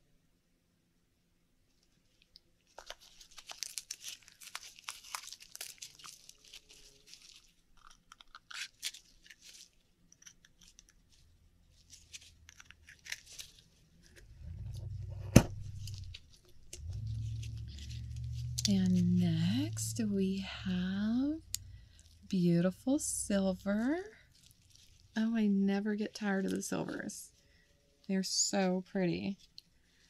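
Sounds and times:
oyster shell crinkling and crunching: 0:02.2 - 0:14.4, 0:21.4 - 0:22.4, 0:23.6 - 0:25.2.

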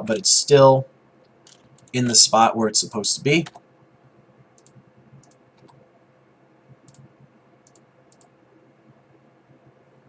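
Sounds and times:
low room hum: 0:00.0 - 0:10.0
mouse and keyboard clicks: 0:04.6 - 0:05.8, 0:06.8 - 0:08.3.

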